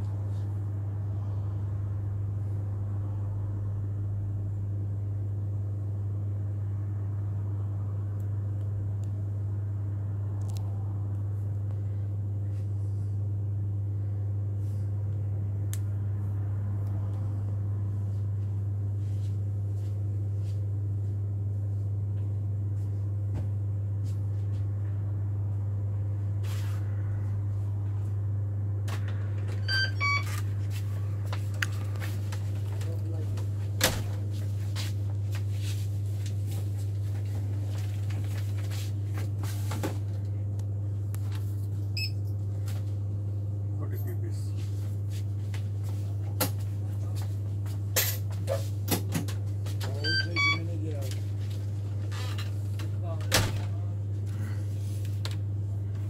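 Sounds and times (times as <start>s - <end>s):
steady low hum: 0.0s - 56.0s
short beeps: 29.7s - 30.3s.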